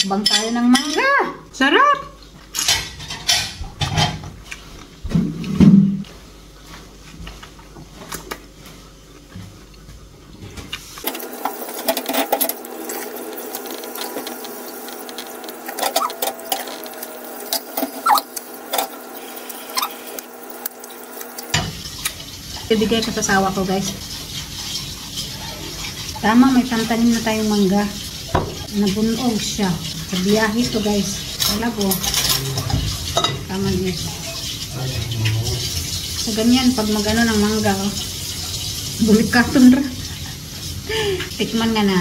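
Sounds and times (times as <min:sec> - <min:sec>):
wet mouth sounds eating fruit: 0:17.9 - 0:18.4.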